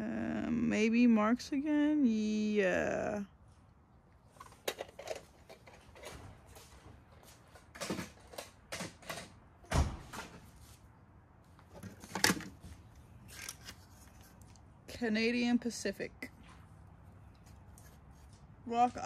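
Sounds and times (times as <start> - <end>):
toy train cars knocking and clattering: 7.6 - 9.4.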